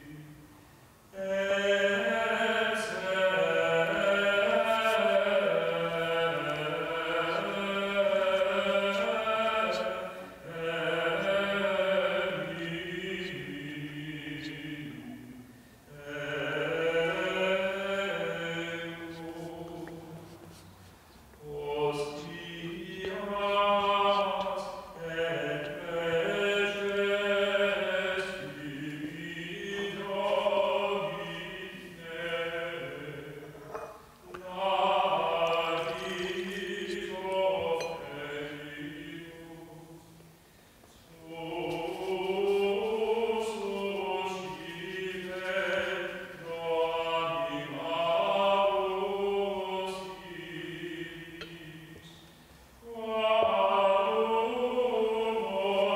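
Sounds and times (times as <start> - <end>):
person singing unaccompanied: 1.2 - 20.5, 21.3 - 40.0, 41.1 - 52.2.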